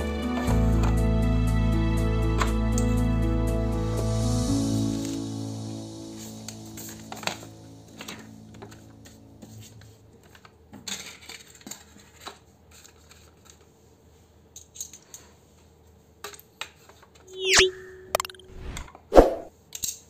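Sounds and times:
cardboard and paper rustling: 9.5 - 13.8
electronic whoosh with held tone: 17.2 - 19.5.

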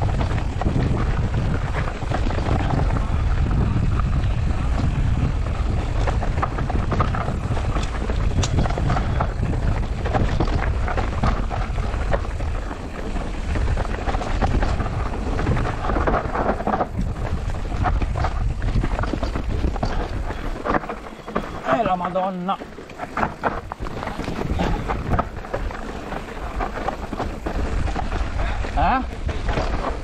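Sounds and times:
bike rattles and knocks: 0.0 - 30.0
low rumble of tyres on dirt: 0.0 - 30.0
wind buffeting microphone: 0.0 - 30.0.

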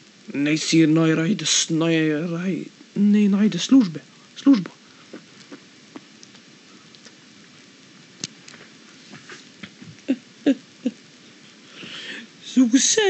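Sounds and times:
low steady hiss: 0.0 - 13.0
soft rustles of handling: 8.3 - 10.1.

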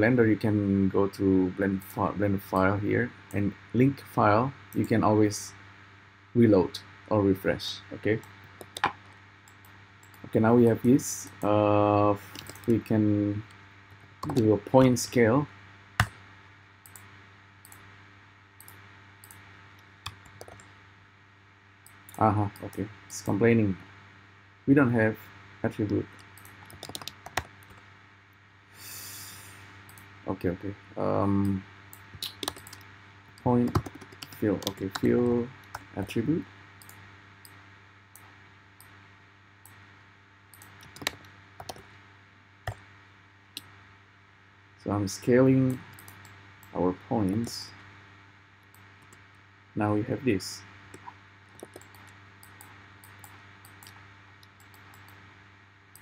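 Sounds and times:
low steady hum: 0.0 - 56.0
computer keyboard keystrokes: 8.6 - 10.2, 12.3 - 12.8, 14.2 - 14.5, 20.1 - 20.7, 26.3 - 27.8, 32.0 - 32.8, 33.6 - 35.1, 40.6 - 41.9, 50.9 - 55.2
mouse and keyboard clicks: 50.9 - 55.2.

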